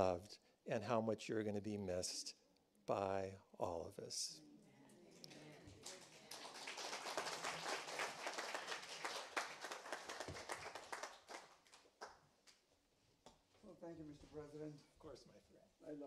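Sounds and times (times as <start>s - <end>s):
people applauding: 5.3s - 12.3s.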